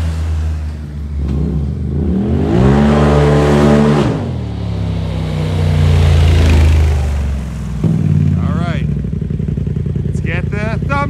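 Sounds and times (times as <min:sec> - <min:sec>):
engine revving hard: 0:01.2 - 0:04.5
engine idling hum: 0:04.2 - 0:11.0.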